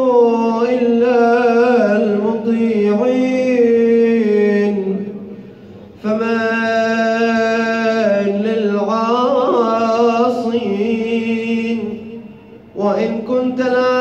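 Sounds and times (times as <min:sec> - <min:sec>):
man chanting melodically: 0:00.0 - 0:14.0
man taking a breath: 0:05.3 - 0:06.0.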